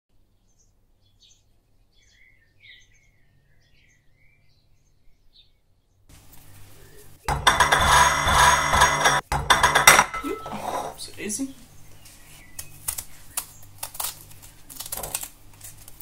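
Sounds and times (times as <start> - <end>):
faint bird chirps: 0.3 - 7.2
kitchen utensils clattering: 7.2 - 11.1
china plate being handled: 7.3 - 11.0.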